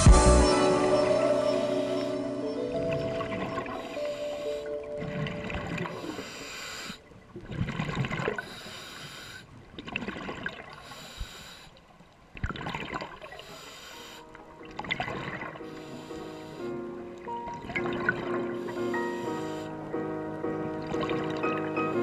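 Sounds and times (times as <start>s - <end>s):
regulator hissing on inhale: 5.9s - 7.1s, 8.4s - 9.5s, 10.8s - 11.8s, 13.4s - 14.4s, 15.6s - 16.9s, 18.6s - 19.8s
bubbly gurgle on exhale: 7.4s - 8.5s, 12.4s - 13.4s.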